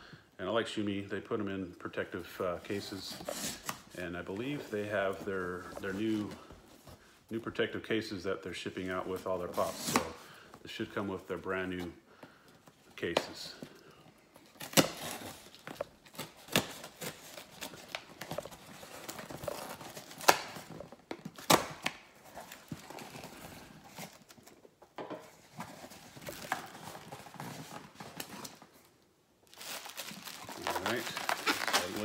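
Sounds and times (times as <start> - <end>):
tape tearing: 3.2 - 3.9, 14.4 - 24.6, 29.5 - 32.0
cardboard rustling and scraping: 25.2 - 28.6, 30.5 - 32.0.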